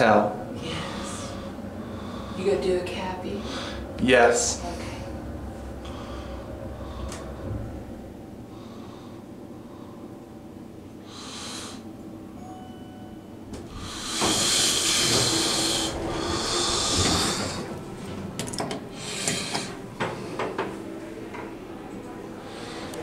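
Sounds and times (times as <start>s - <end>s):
low motor hum: 0.0s - 23.0s
elevator doors sliding open: 13.4s - 23.0s.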